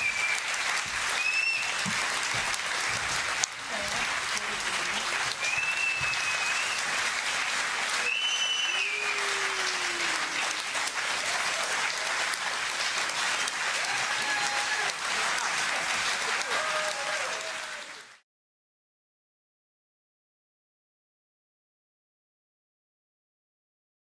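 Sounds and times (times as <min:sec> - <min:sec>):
audience applauding: 0:00.0 - 0:18.2.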